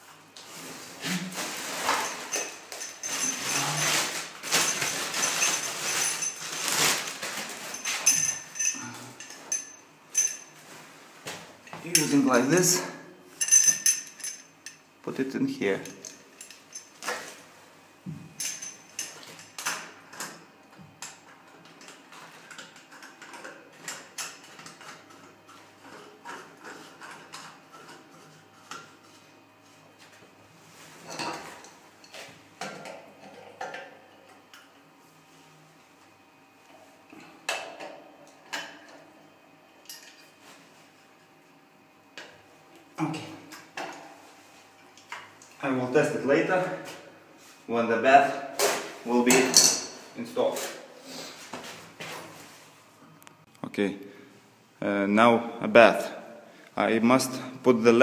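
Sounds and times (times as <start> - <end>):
plastic bag rustling: 0.5 - 8.6.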